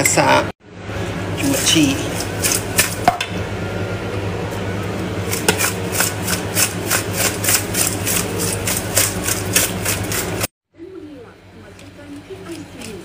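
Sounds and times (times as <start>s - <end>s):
steady low hum: 0.0s - 13.0s
prawns rubbed with salt in bowl: 5.3s - 10.5s, 11.7s - 13.0s.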